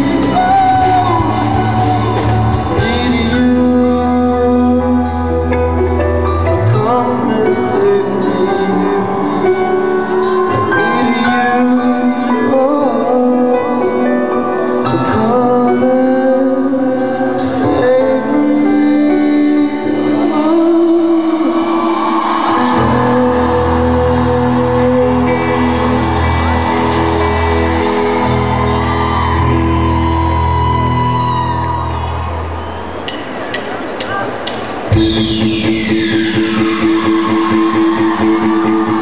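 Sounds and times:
deep bass: 0.0 - 9.0
man singing: 0.0 - 29.7
live pop band playing: 0.0 - 39.0.

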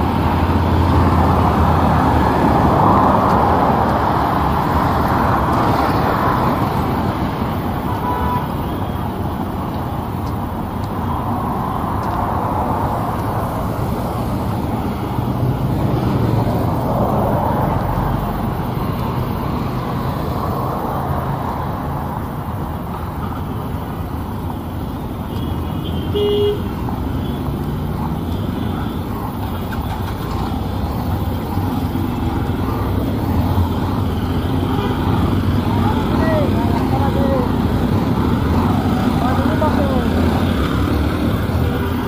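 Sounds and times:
road traffic noise: 0.0 - 42.0
car horn beep: 7.9 - 9.0, 25.3 - 27.4.

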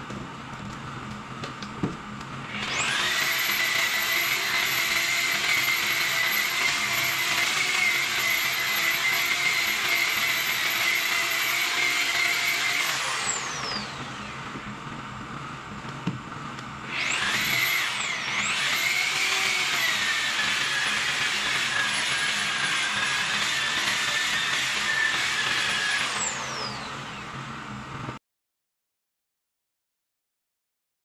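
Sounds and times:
electric polisher motor whine: 2.4 - 14.7, 16.8 - 27.7.

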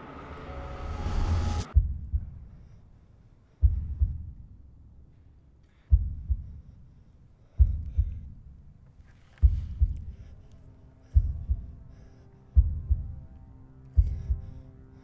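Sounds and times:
heartbeat thumps: 1.7 - 2.8, 3.6 - 5.0, 5.8 - 6.8, 7.5 - 8.8, 9.4 - 10.4, 11.0 - 14.8.

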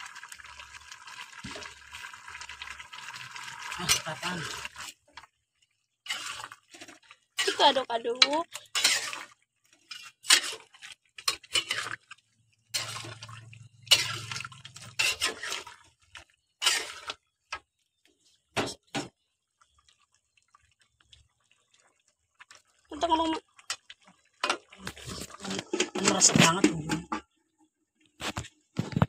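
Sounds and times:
metal spatula scraping wok: 6.0 - 15.9, 16.6 - 17.2.

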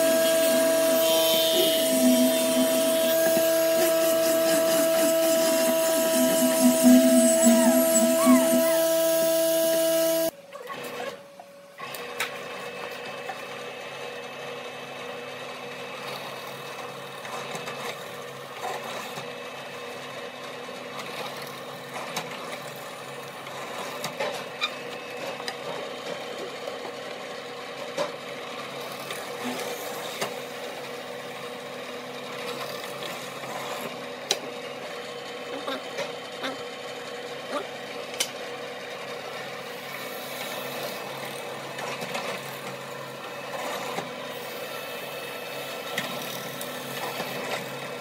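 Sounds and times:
angle grinder sanding wood: 0.0 - 10.3
drill press boring into wood: 0.0 - 10.3.

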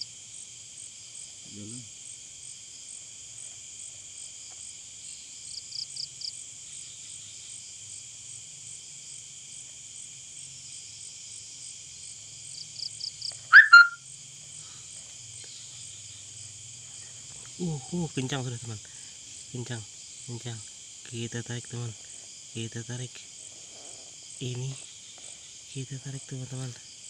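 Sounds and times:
insects trilling at night: 0.0 - 27.0
loud call falling in pitch: 13.5 - 14.0
short bursts of chirps: 13.5 - 14.0.

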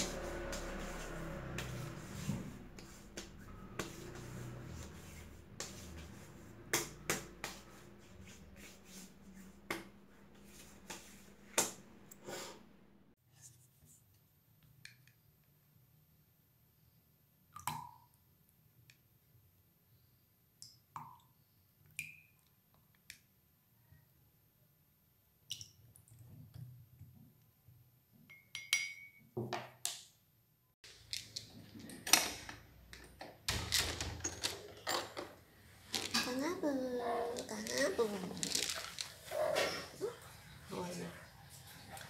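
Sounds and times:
objects being handled: 30.8 - 40.2.

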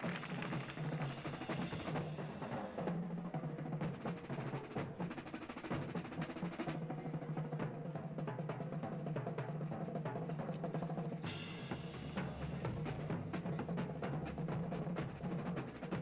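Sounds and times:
drum and bugle corps playing: 0.0 - 16.0
fast drum rolls: 0.0 - 16.0.

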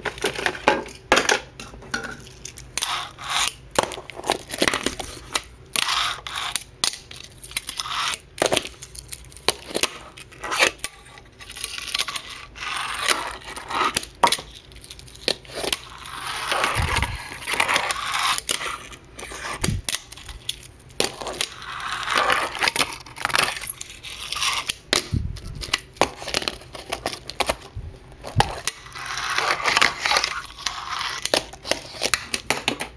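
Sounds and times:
fingerboard wheels rolling: 15.5 - 19.9.

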